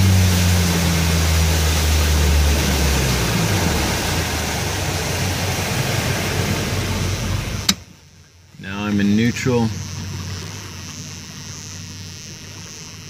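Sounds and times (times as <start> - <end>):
wind and water rushing: 0.0 - 8.2
boat engine throttling back: 0.0 - 13.0.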